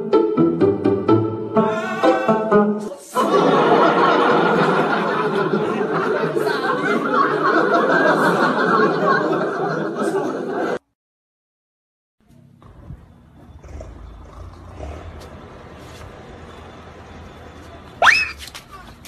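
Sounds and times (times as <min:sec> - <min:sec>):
plucked-string music: 0:00.0 - 0:02.9
group of people laughing: 0:03.0 - 0:10.8.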